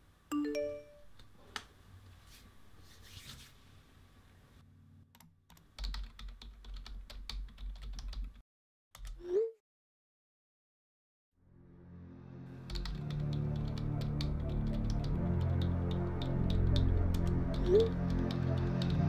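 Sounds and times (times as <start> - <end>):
phone notification chime: 0.3 - 1.1
laptop keyboard typing: 5.2 - 8.4, 12.6 - 19.0.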